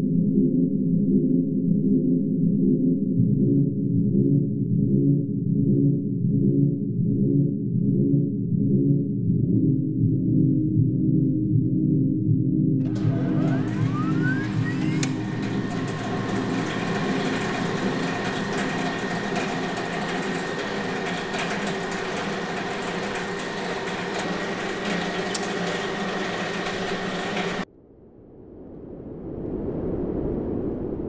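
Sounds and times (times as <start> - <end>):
electronic hum with static: 12.8 - 27.7
thin high whine: 12.9 - 27.6.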